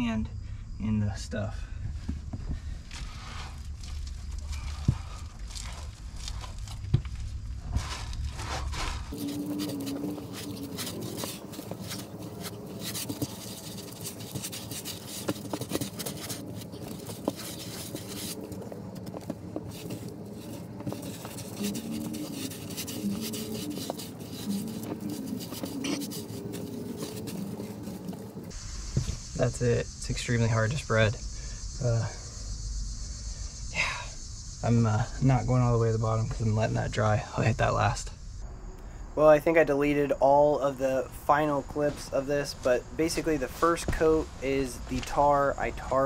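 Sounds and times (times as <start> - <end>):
broom scrubbing concrete wall: 7.6 - 29.2.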